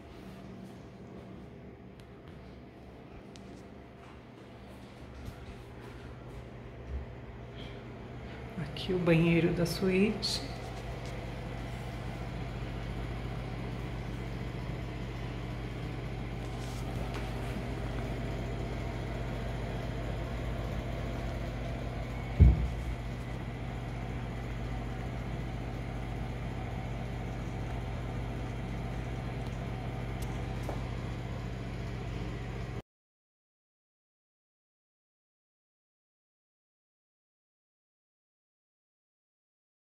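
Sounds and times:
steady low hum: 0.0 - 32.8
short low thump: 22.3 - 23.0.

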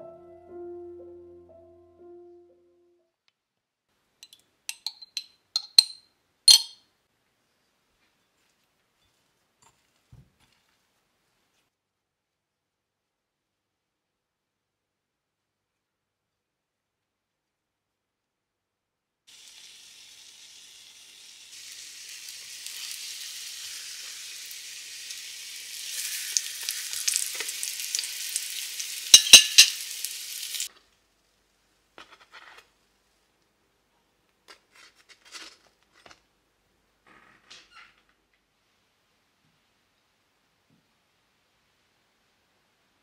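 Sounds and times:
metal fork clicking on pan: 4.2 - 6.8, 29.1 - 29.8
buns sizzling in oil: 19.3 - 30.7.

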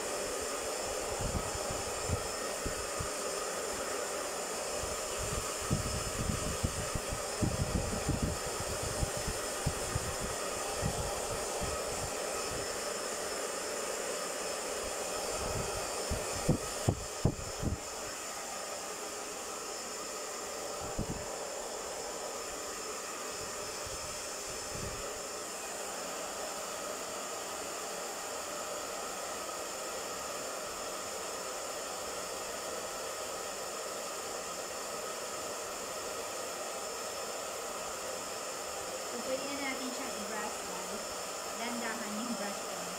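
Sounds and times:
hair dryer running: 0.0 - 42.9.

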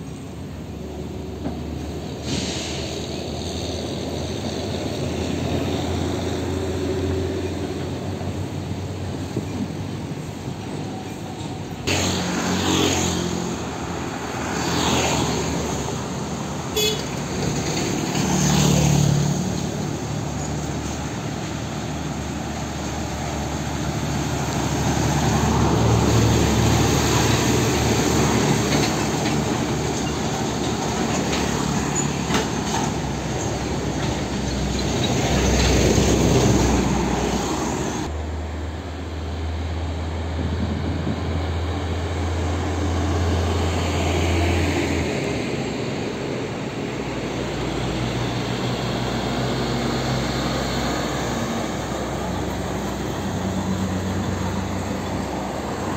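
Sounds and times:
cars passing: 0.0 - 55.9
diesel truck engines: 0.0 - 55.9
distant traffic hum: 0.0 - 55.9
tanker truck driving past: 0.0 - 55.9
motorcycles passing: 11.8 - 31.9.

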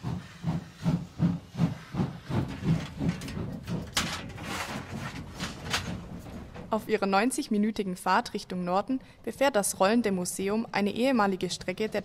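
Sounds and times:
steam hissing: 0.0 - 2.8
steam locomotive chuffing: 0.0 - 5.0.

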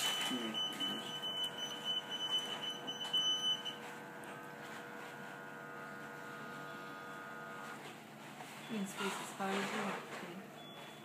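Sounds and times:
pulsing electronic alarm tone: 0.0 - 7.7
faint equipment hum: 0.0 - 11.0.

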